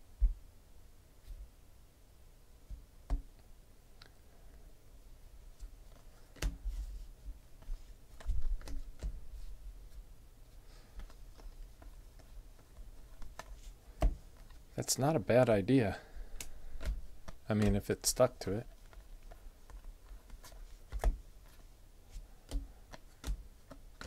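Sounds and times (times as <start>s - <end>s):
trading cards clicking and tapping: 7.6s - 9.2s, 10.9s - 14.6s, 16.2s - 24.0s.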